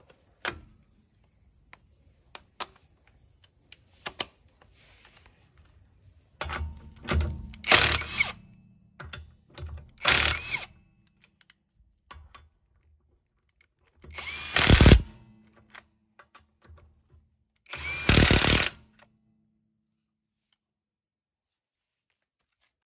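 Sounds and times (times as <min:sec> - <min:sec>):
impact wrench hammering: 0:14.2 - 0:15.2, 0:17.8 - 0:18.8.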